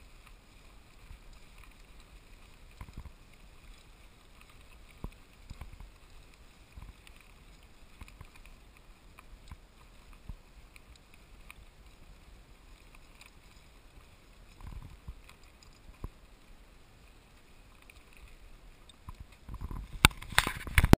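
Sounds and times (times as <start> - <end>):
bicycle tyres rumbling on dirt: 0.0 - 20.9
bicycle rattles and knocks: 18.8 - 20.9
wind on microphone: 19.0 - 20.9.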